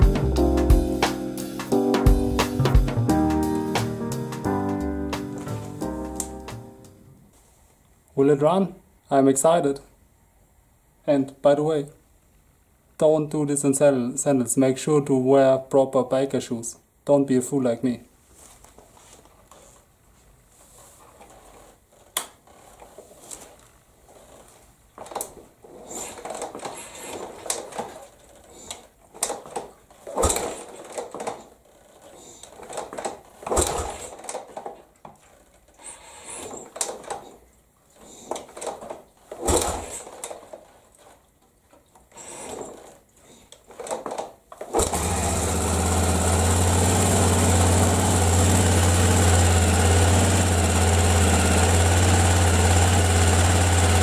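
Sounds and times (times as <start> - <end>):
motorcycle engine kick-started: 32.2 - 34.7, 39.4 - 40.6, 44.6 - 54.0
motorcycle engine idling: 45.0 - 54.0.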